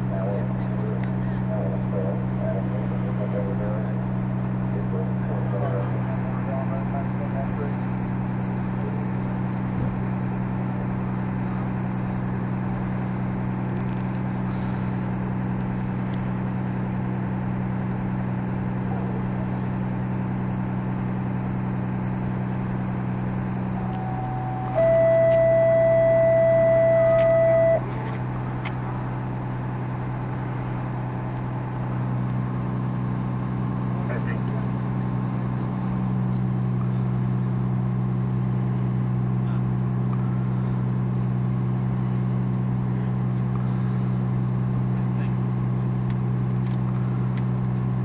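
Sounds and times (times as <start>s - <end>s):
vehicle engines idling: 0.0s - 48.0s
loud single-pitched tone: 23.6s - 28.2s.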